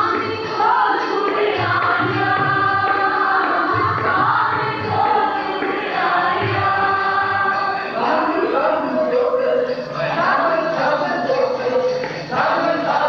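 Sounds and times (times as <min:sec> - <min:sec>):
tabla strokes: 0:00.0 - 0:08.6
harmonium: 0:00.0 - 0:13.0
men singing together: 0:00.0 - 0:13.0.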